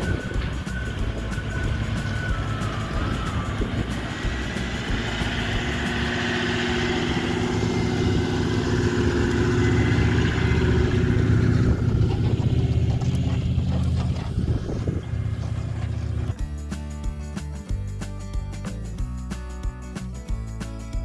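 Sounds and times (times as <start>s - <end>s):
four-wheel drive engine passing: 0.0s - 16.4s.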